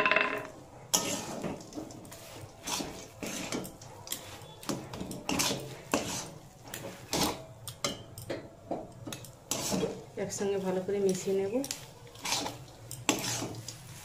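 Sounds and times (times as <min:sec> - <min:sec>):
metal spatula scraping a metal pan: 0:00.0 - 0:07.4, 0:09.5 - 0:10.4, 0:12.1 - 0:14.0.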